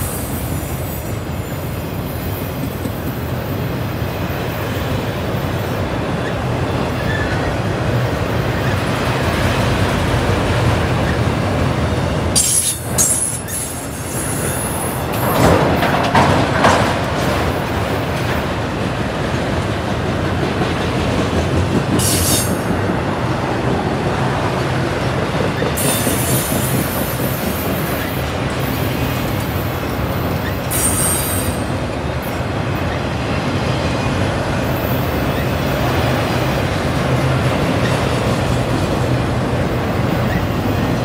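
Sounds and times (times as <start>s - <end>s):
wheels clattering over rail joints: 12.3s - 22.9s
high-pitched wheel squeals: 30.4s - 31.7s.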